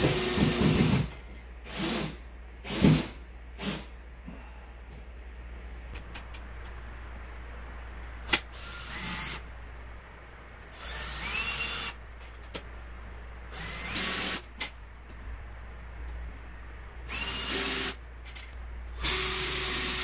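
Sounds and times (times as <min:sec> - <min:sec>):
cordless drill whining: 0:13.5 - 0:14.4, 0:17.1 - 0:18.0, 0:19.0 - 0:20.0.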